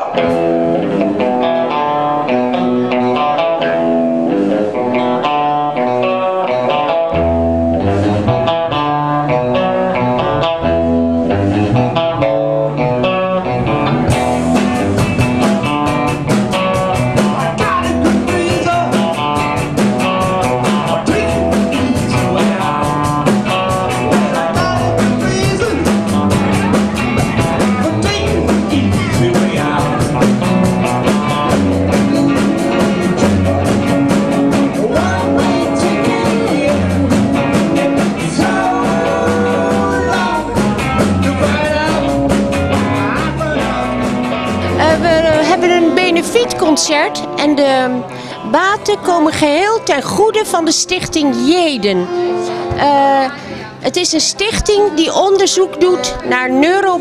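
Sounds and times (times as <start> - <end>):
live rock band playing: 0.0 - 57.0
woman singing: 38.4 - 40.7, 44.6 - 51.6.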